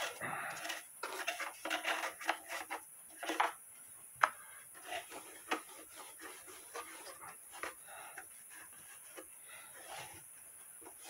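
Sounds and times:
brush rubbing wood: 4.8s - 11.0s.

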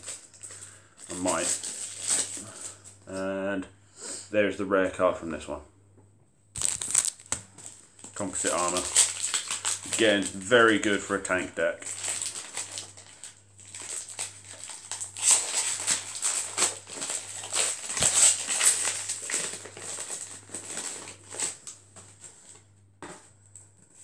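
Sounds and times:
card packs being torn open: 0.0s - 3.0s, 6.6s - 11.0s, 11.8s - 22.2s
cards being handled: 6.6s - 10.8s.

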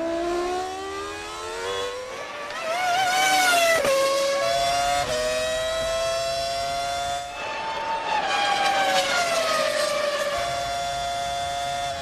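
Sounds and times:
racing car engine accelerating: 0.0s - 12.0s.

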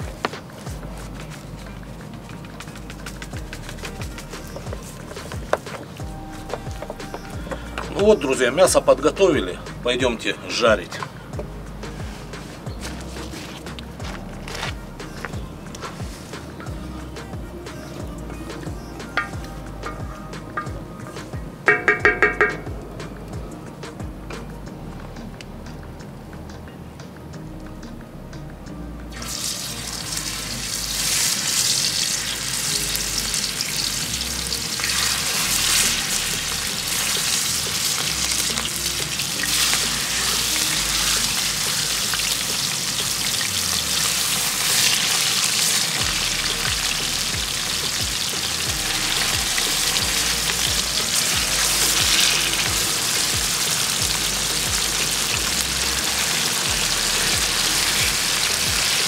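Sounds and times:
chicken sizzling in a pan: 29.1s - 59.0s.

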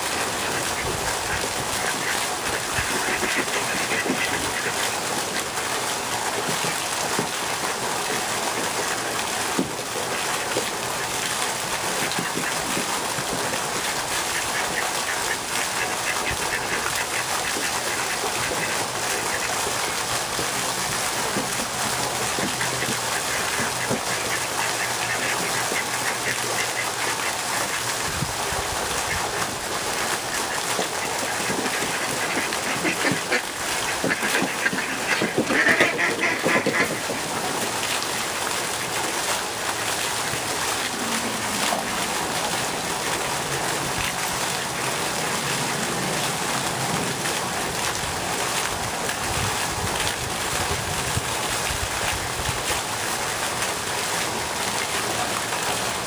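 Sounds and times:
fountain splashing: 0.0s - 56.0s
ducks quacking: 0.4s - 4.9s, 14.2s - 20.0s, 22.3s - 27.9s, 29.9s - 37.2s.

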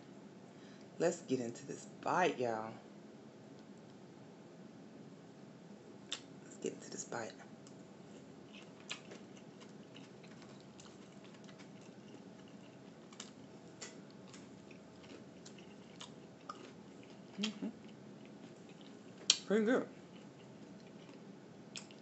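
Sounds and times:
chewing soft food: 7.6s - 22.0s.

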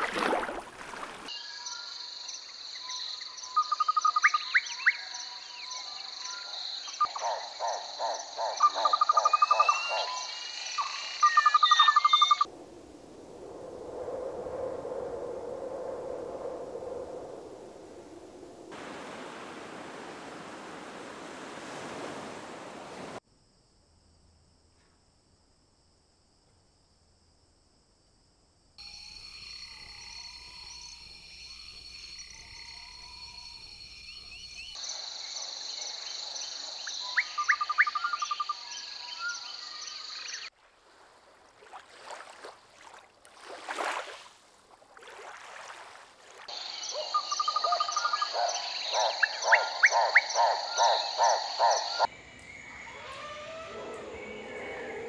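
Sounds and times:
insect chorus: 0.0s - 55.0s
frogs croaking: 0.9s - 12.5s, 28.8s - 43.2s, 46.3s - 55.0s
bird calls: 5.6s - 12.5s, 46.5s - 55.0s
surf washing on rocks: 18.7s - 23.2s.

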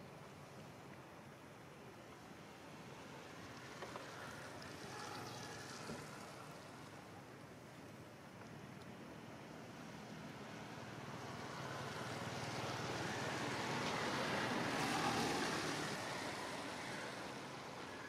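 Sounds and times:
motor vehicle passing: 11.1s - 17.8s.

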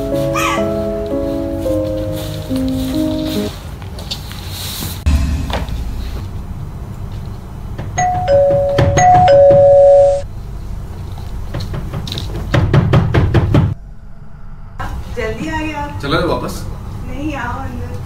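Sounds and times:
footsteps on wooden floor: 0.0s - 5.8s
two-tone doorbell chime: 8.0s - 10.2s.

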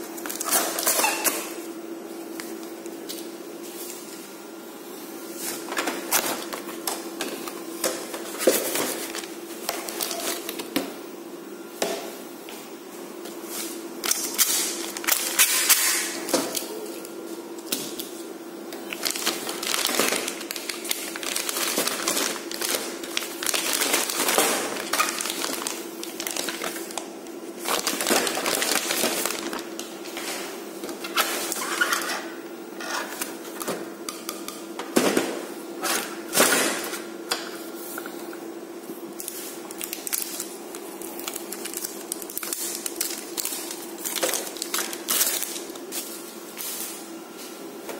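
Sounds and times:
plastic bag crinkling: 8.0s - 10.7s, 14.0s - 15.7s, 18.9s - 30.0s, 39.2s - 46.0s.

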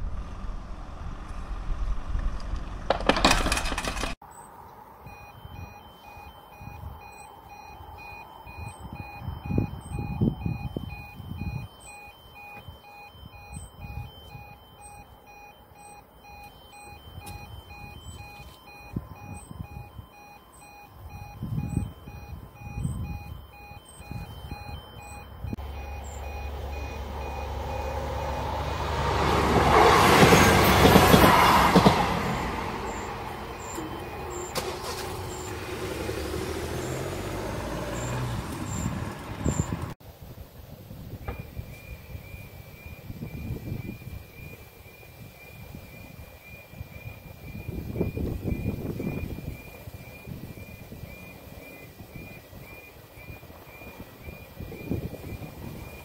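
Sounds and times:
level crossing warning beeps: 4.3s - 39.9s, 41.2s - 56.0s
train passing: 25.6s - 39.6s.

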